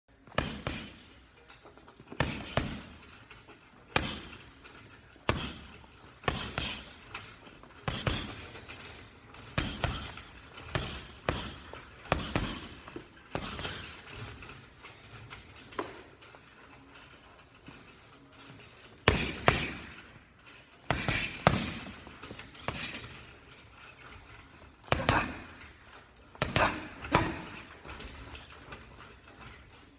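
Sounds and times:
gloves punching heavy bag: 0:00.2 - 0:01.1, 0:02.0 - 0:03.2, 0:03.9 - 0:04.5, 0:05.2 - 0:14.4, 0:19.0 - 0:20.1, 0:20.8 - 0:23.4, 0:24.7 - 0:29.0.

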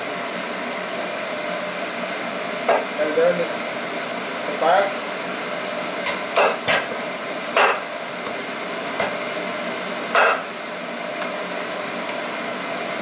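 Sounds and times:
steady background hum: 0:00.0 - 0:13.0
cleaver chopping on wooden board: 0:06.1 - 0:06.9, 0:07.6 - 0:07.8.

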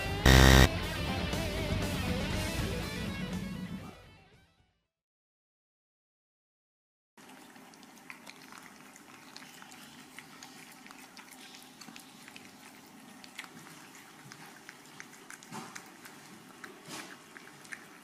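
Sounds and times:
cats licking and chewing food: 0:07.2 - 0:18.0.

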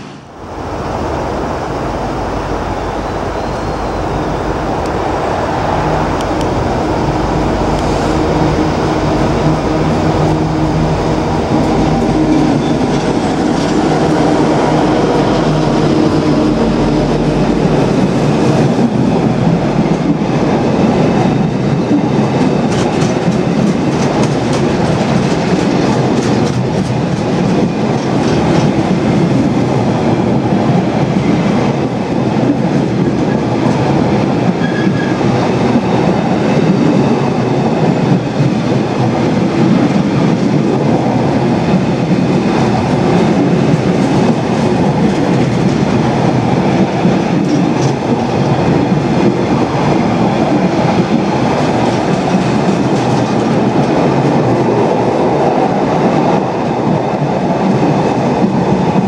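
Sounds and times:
diesel locomotive engine: 0:00.0 - 0:59.0
train wagon wheels clattering: 0:17.6 - 0:29.6, 0:30.4 - 0:59.0.

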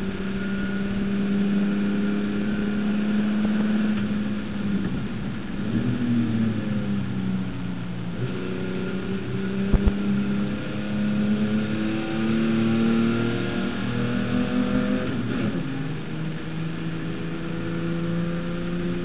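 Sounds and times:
race car engine: 0:00.0 - 0:19.0
sharp thump: 0:09.7 - 0:10.0.

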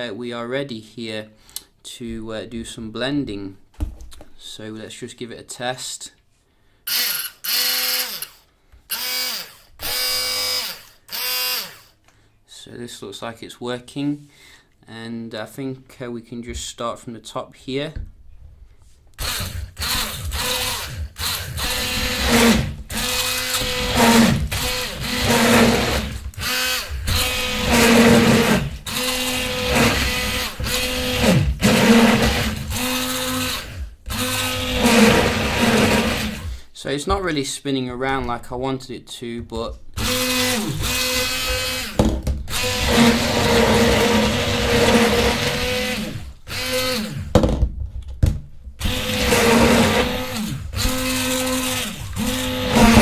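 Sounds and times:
hand blender motor whirring: 0:06.9 - 0:12.0, 0:19.2 - 0:36.6, 0:40.0 - 0:47.3, 0:48.8 - 0:53.0.

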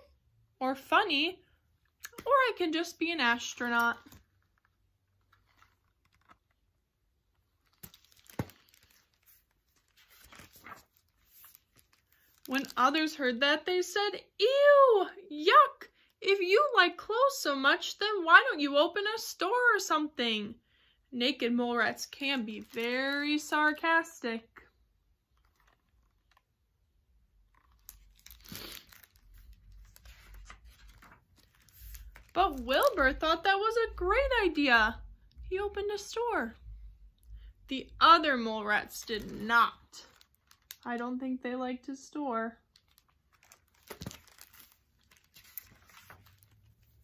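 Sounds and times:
book pages rustling: 0:03.4 - 0:12.9, 0:25.2 - 0:26.8, 0:27.4 - 0:33.2, 0:42.7 - 0:47.0.

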